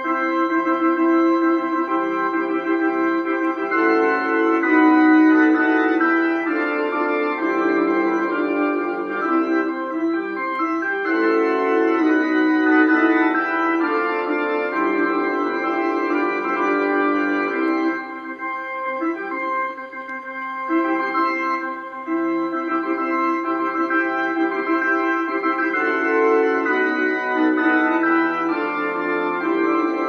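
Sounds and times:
organ music: 0:00.0 - 0:30.0.

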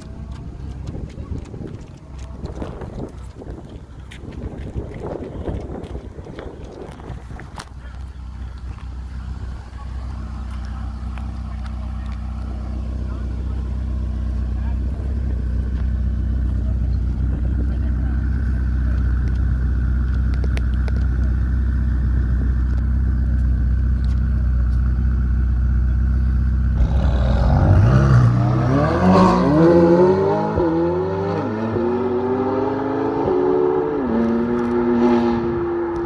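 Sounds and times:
sports car engines idling: 0:00.0 - 0:31.0
sports car accelerating hard: 0:26.7 - 0:36.0.

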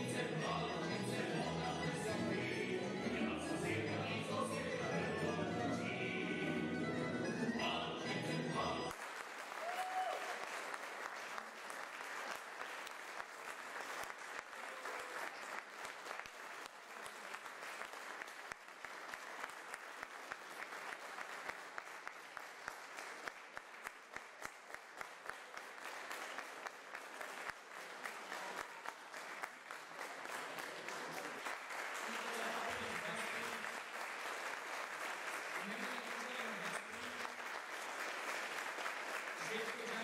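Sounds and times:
audience applauding: 0:08.9 - 0:40.0.

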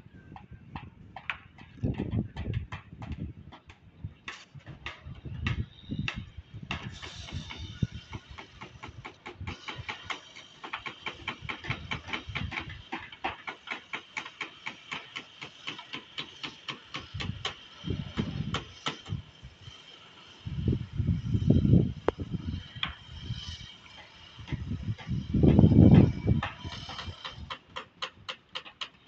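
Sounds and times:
hand tools tapping on timber: 0:00.3 - 0:17.6, 0:26.0 - 0:29.0.

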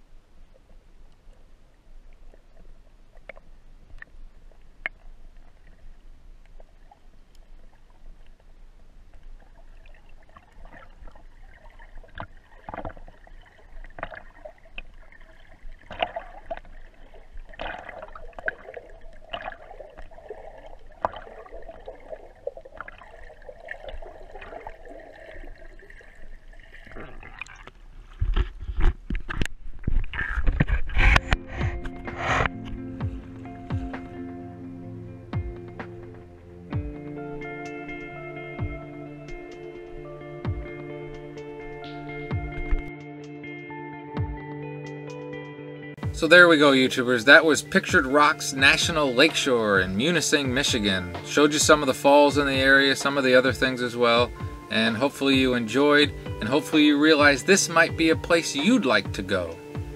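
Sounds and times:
water sloshing and splashing: 0:00.5 - 0:34.2, 0:39.3 - 0:42.9, 0:46.0 - 0:59.9
muffled underwater sound: 0:46.1 - 0:59.9.

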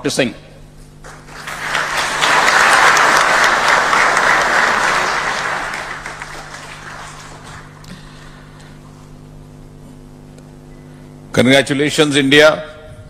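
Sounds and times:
audience applause: 0:01.0 - 0:08.4.

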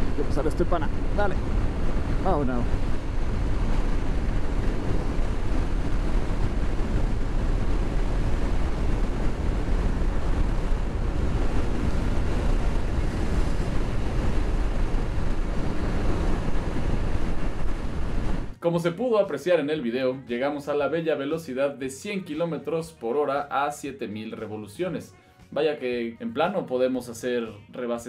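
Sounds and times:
wind noise on microphone: 0:00.0 - 0:18.6.

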